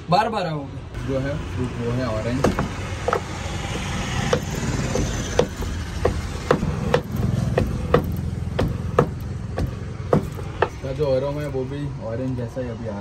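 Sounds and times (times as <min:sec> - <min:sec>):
blade chopping onto wooden board: 0:02.4 - 0:10.8.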